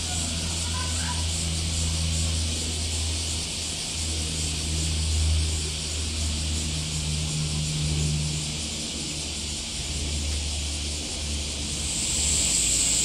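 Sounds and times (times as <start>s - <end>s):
low mechanical hum: 0.0s - 13.0s
high-pitched hiss: 11.4s - 13.0s.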